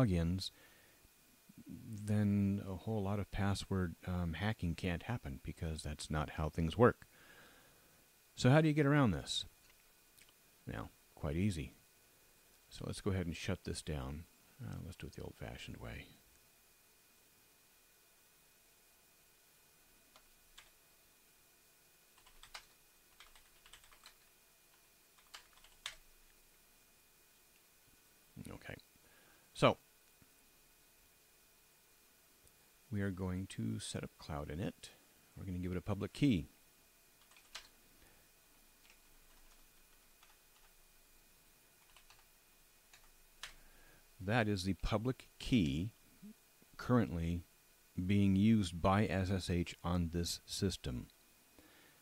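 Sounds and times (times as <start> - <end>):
keyboard typing: 22.2 - 26.0, 37.2 - 37.7, 38.8 - 40.7, 41.8 - 42.2, 42.9 - 43.6.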